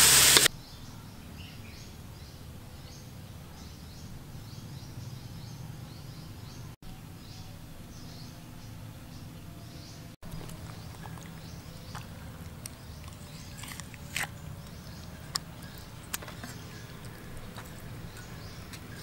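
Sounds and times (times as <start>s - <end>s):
steady low hum: 6.9s - 19.0s.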